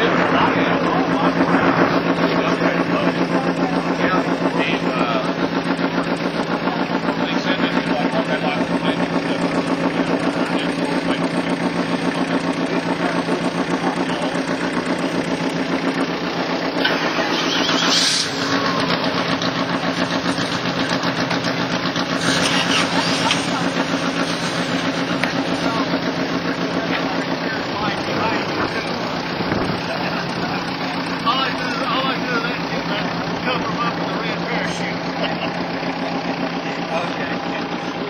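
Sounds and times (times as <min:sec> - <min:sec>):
vehicle engine running: 0:00.0 - 0:38.0
brief rising hiss: 0:17.6 - 0:18.4.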